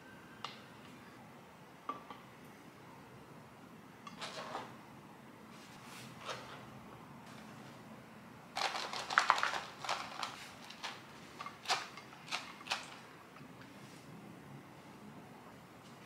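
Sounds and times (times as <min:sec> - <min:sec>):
utensils clicking on containers: 0:08.6 - 0:13.1.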